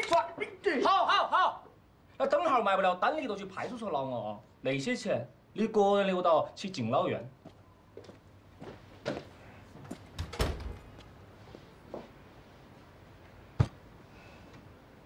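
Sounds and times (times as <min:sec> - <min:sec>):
door shutting with heavy thud: 0:10.2 - 0:10.9.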